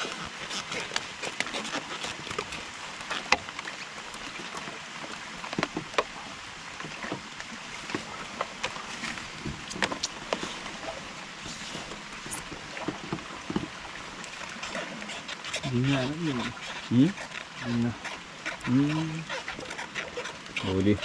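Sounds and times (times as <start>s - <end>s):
raindrops tapping on wood: 0.8s - 6.1s, 7.9s - 10.6s.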